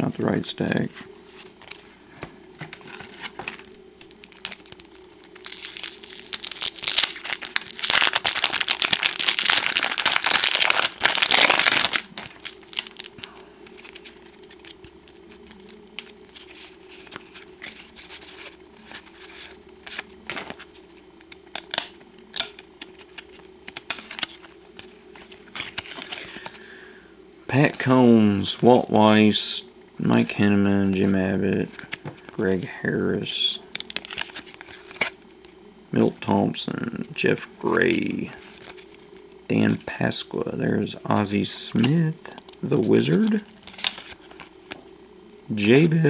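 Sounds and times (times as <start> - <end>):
wrapper tearing and crinkling: 2.9 - 20.6, 21.2 - 26.5, 33.8 - 35.2, 43.2 - 44.8
cards clicking and sliding: 21.2 - 26.5, 43.6 - 44.8.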